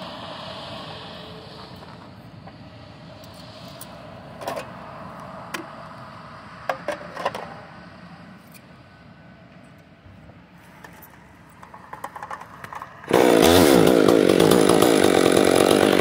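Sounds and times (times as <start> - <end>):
heavy logging equipment running: 0.0 - 3.2, 10.8 - 16.0
tools clicking and knocking: 10.8 - 13.1.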